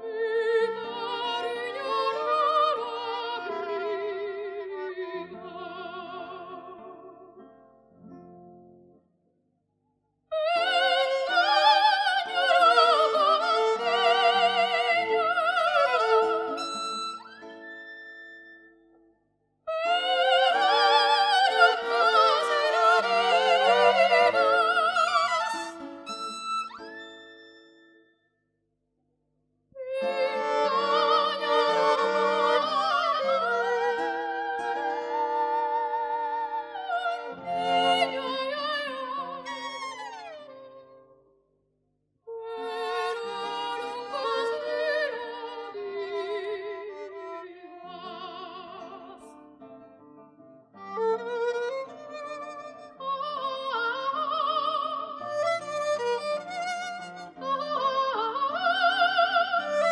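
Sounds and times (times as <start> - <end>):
soprano singing with vibrato: 0.0 - 4.8, 10.3 - 16.7, 19.7 - 25.8, 29.8 - 39.8, 42.4 - 47.1, 52.9 - 55.4, 57.3 - 59.9
violin: 0.0 - 8.9, 10.3 - 19.1, 19.7 - 28.1, 29.8 - 41.3, 42.3 - 59.9
guitar: 6.1 - 9.0, 43.7 - 59.9.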